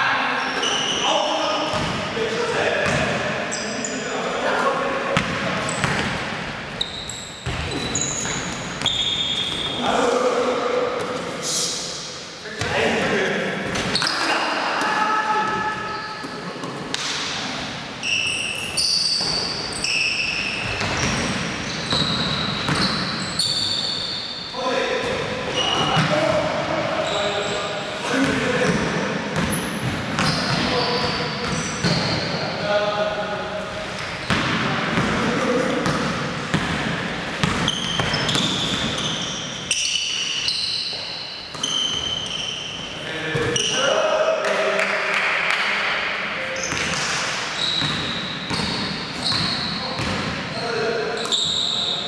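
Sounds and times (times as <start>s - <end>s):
shoes squeaking on hardwood floor: 0.4s - 1.2s, 6.7s - 10.1s, 13.7s - 14.4s, 15.3s - 16.8s, 18.0s - 26.3s, 29.4s - 32.4s, 37.4s - 43.8s, 46.5s - 52.0s
basketball bouncing: 2.8s - 3.2s, 5.2s - 6.2s, 20.6s - 23.2s, 35.8s - 39.1s, 47.8s - 50.4s.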